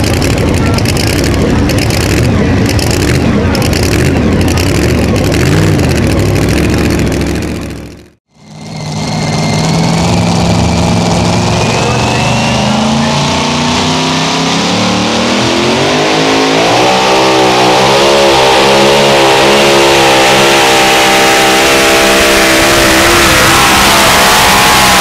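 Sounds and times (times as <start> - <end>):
truck engine revving under load: 0.0 - 25.0.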